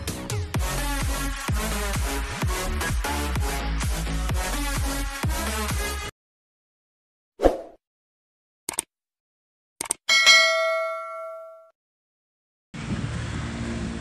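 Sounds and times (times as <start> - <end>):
notification bell ding: 10.1 - 11.7.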